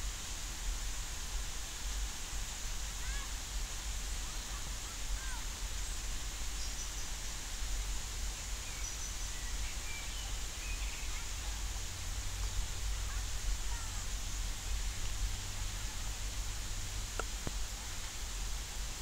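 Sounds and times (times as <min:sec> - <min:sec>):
rain falling on a lake: 0:00.0 - 0:19.0.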